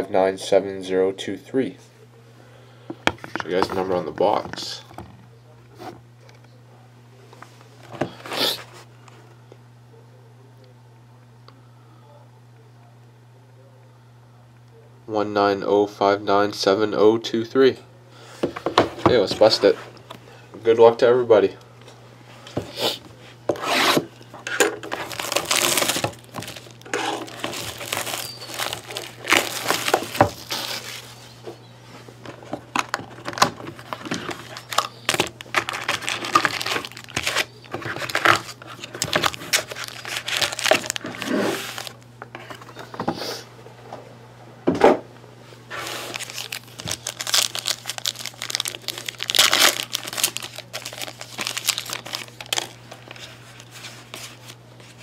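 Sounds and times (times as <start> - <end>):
foil wrappers crinkling and ripping: 23.7 - 31.3, 32.8 - 42.0, 45.7 - 55.0
cardboard box tearing: 24.9 - 31.0, 33.3 - 41.9, 45.8 - 52.6.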